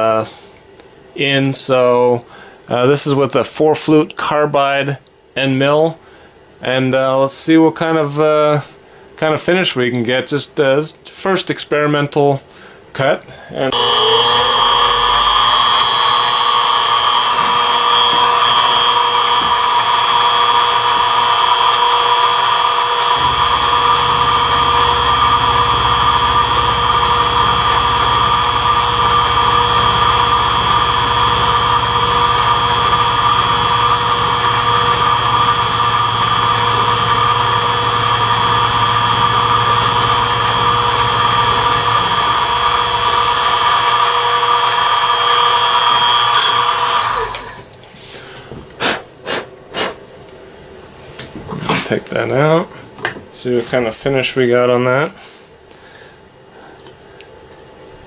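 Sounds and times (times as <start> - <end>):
end mill cutting plastic: 13.7 - 47.8
mill motor whining: 13.7 - 47.8.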